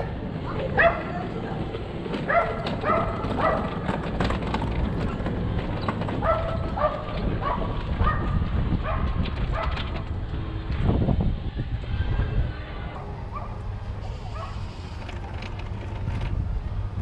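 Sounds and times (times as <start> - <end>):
dog barking: 0.8 - 1.1, 2.3 - 3.8, 6.2 - 9.8, 13.0 - 13.6, 14.3 - 14.6.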